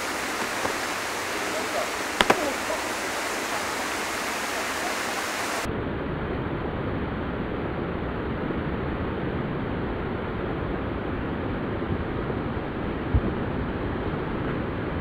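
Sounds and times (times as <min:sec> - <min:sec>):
high hiss: 0:00.0 - 0:05.7.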